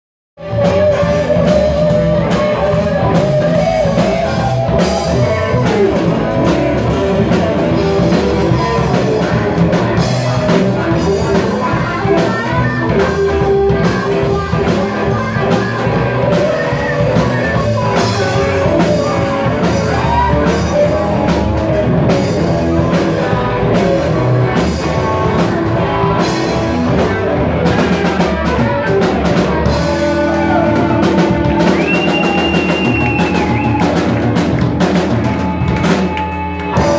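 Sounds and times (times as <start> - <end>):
bass guitar: 0.4 - 36.9
drum kit beat: 0.4 - 36.9
electric guitars: 0.4 - 36.9.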